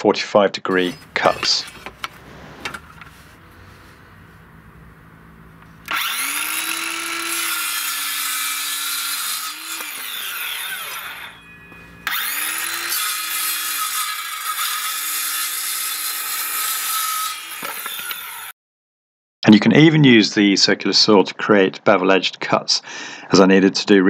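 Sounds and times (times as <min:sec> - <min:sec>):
circular saw cutting wood: 0:00.7 - 0:18.5.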